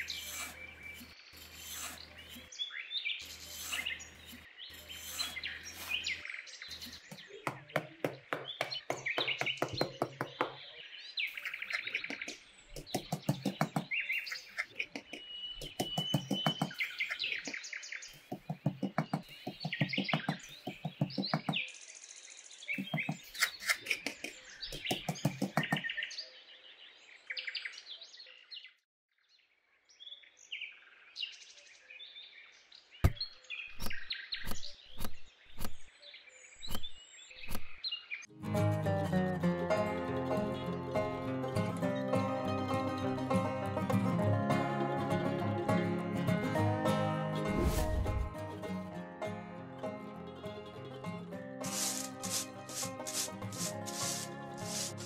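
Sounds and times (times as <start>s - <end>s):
trowel scraping damp sand: 0.0s - 10.2s, 11.4s - 17.6s, 18.2s - 21.6s, 22.8s - 25.8s, 47.5s - 48.4s, 51.6s - 55.0s
birds chirping: 0.0s - 26.3s.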